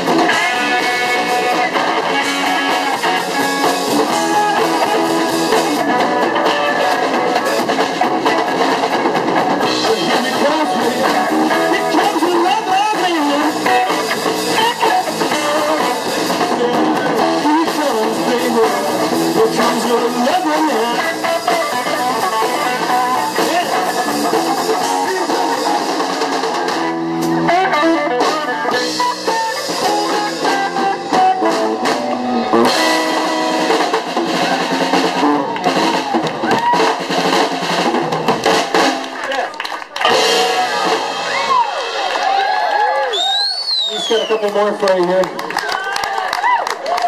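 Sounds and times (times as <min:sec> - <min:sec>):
drum kit: 0:00.0 - 0:47.0
electric guitar: 0:00.0 - 0:47.0.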